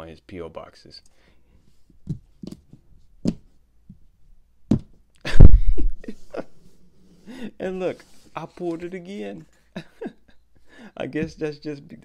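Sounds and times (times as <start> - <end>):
deep thump: 4.7 - 6.0.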